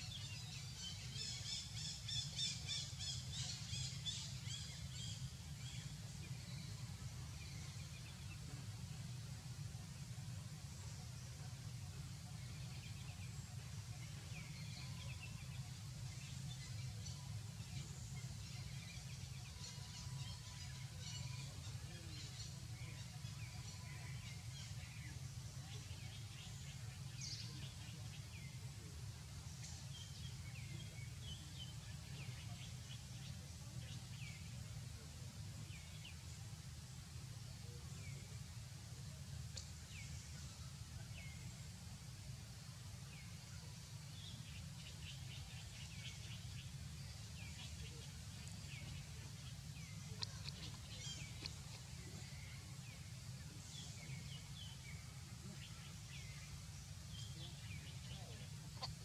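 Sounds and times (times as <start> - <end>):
low background hum: 0.0 - 59.0
faint bird chirps: 43.0 - 59.0.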